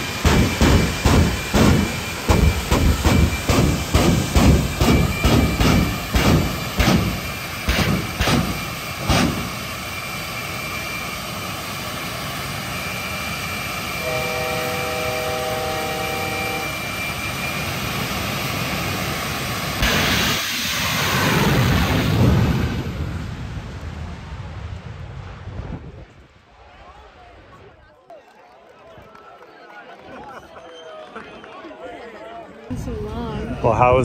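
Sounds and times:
flame-thrower blasts: 0:00.0 - 0:10.0, 0:19.5 - 0:26.7
jet engine roaring: 0:00.0 - 0:27.8.

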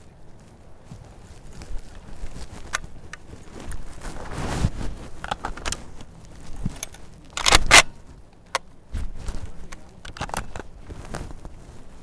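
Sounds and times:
footsteps on dry grass: 0:00.0 - 0:08.2
gear rustling and clattering: 0:00.0 - 0:12.0.

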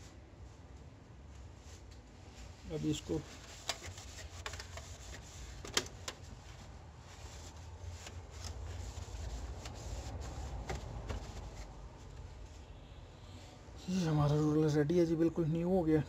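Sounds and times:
soft rubbing and rustling: 0:00.0 - 0:12.8.

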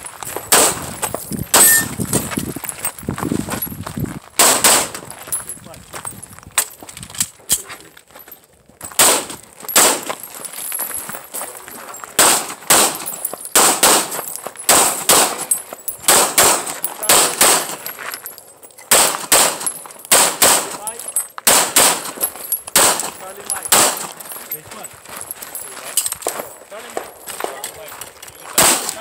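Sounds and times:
handgun shots: 0:00.5 - 0:00.8, 0:01.5 - 0:01.9, 0:04.4 - 0:05.0, 0:09.0 - 0:10.1, 0:12.2 - 0:17.8, 0:18.9 - 0:24.1, 0:28.5 - 0:29.0.

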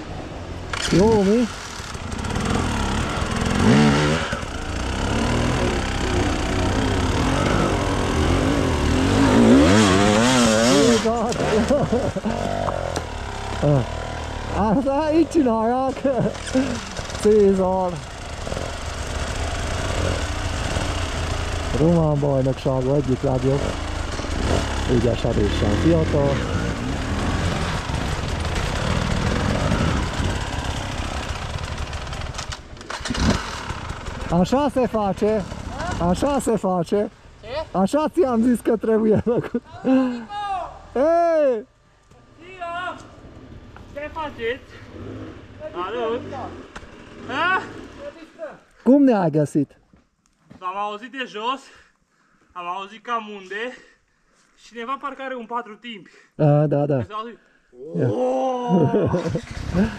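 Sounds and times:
motorcycle engine revving: 0:00.0 - 0:40.2, 0:42.3 - 0:48.3, 0:58.8 - 0:59.9.

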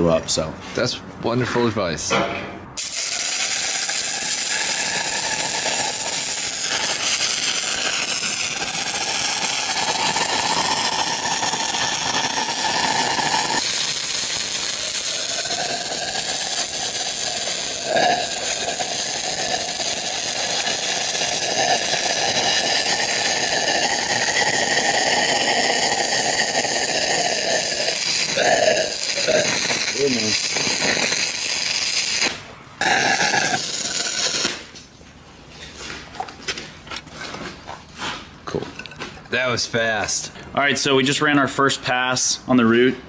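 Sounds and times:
welding arc crackling hiss: 0:02.8 - 0:34.8
sharp welding crack: 0:02.8 - 0:34.9.

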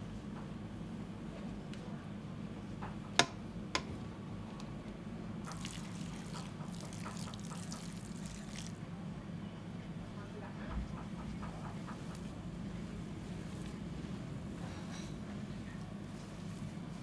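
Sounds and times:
low machine hum: 0:00.0 - 0:17.0
fine crackling trickling noise: 0:05.4 - 0:08.8.

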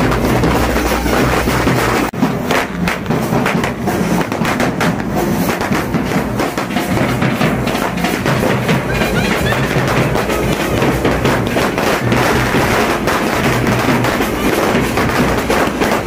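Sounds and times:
bass drums: 0:00.0 - 0:16.0
firecrackers crackling: 0:00.0 - 0:16.0
street band playing: 0:00.0 - 0:16.0.

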